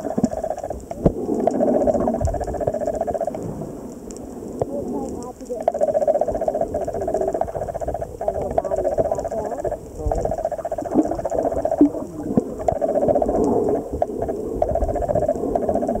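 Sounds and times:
low underwater rumble: 0.0s - 16.0s
underwater pulsing buzz: 0.0s - 16.0s
scattered clicks: 4.0s - 16.0s.

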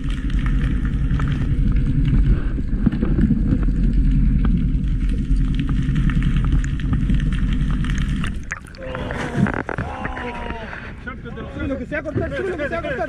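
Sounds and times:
faint clicks and ticks: 0.0s - 8.8s
muffled underwater rumble: 0.0s - 12.6s.

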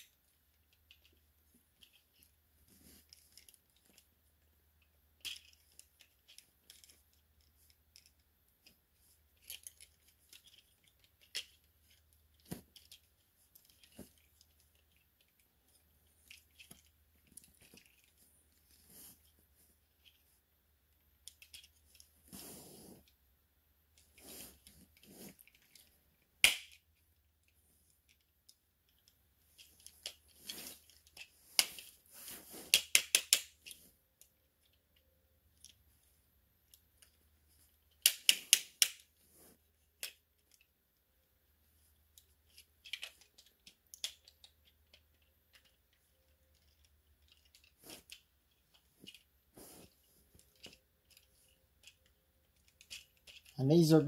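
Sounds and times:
plastic parts clicking and snapping: 0.0s - 2.4s, 3.0s - 4.1s, 4.8s - 18.8s, 20.9s - 22.1s, 23.9s - 32.0s, 32.7s - 40.7s, 42.0s - 53.6s.

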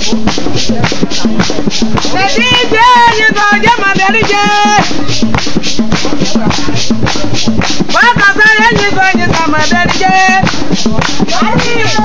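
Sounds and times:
percussion beat: 0.0s - 12.0s
women singing: 2.2s - 5.1s, 8.0s - 10.5s.

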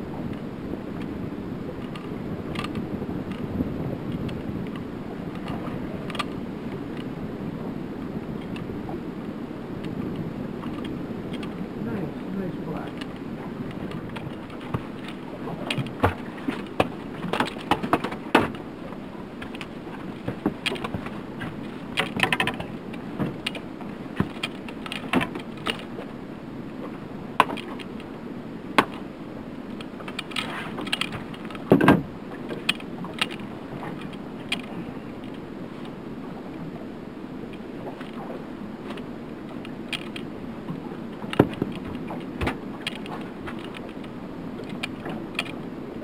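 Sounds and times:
water lapping: 0.0s - 46.0s
wind: 0.0s - 46.0s
fishing gear clicking and clinking: 12.9s - 18.6s, 19.4s - 21.1s, 21.9s - 23.6s, 24.2s - 25.9s, 29.7s - 31.8s, 34.0s - 35.4s, 38.9s - 40.3s, 41.2s - 45.6s.

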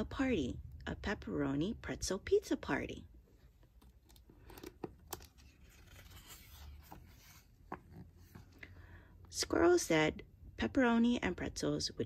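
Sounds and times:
paper rustling and sliding: 4.4s - 8.5s.

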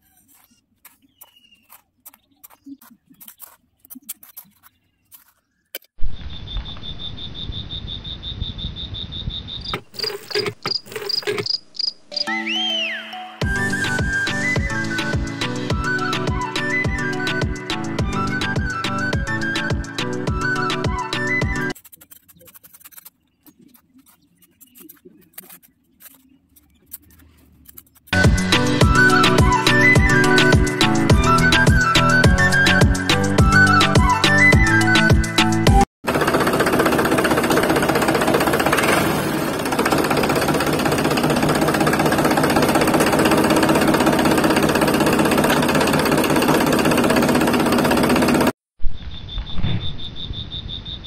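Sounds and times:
shovel scraping in sand: 0.0s - 5.5s, 9.8s - 11.5s
crickets chirping: 6.2s - 12.0s, 49.0s - 51.0s
music: 12.2s - 21.8s, 28.2s - 35.9s.

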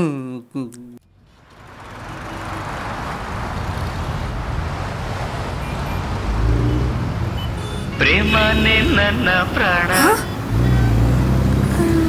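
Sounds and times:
road traffic passing: 1.0s - 12.0s.

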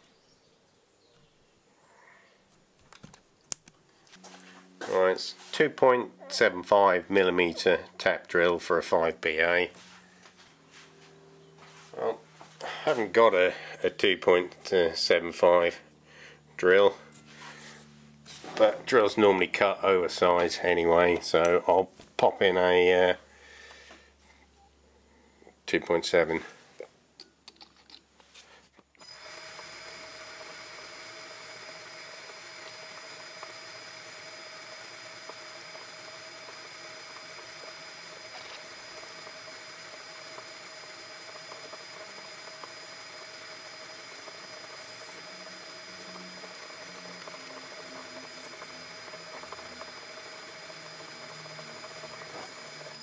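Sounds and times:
drill drilling into steel: 29.0s - 53.0s
metal lathe whining: 29.0s - 53.0s.

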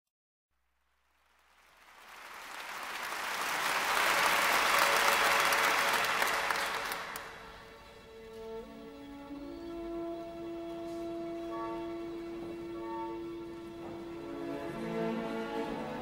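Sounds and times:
crowd applause: 1.3s - 7.6s.

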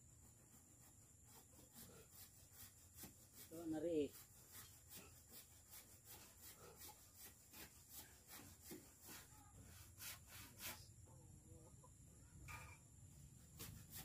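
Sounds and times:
handsaw cutting wood: 0.3s - 10.9s, 13.4s - 14.0s.

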